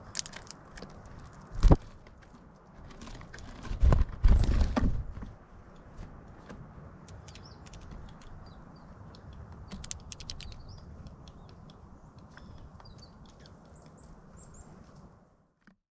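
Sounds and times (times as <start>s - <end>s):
bird pecking on wooden feeder: 7.0s - 14.0s.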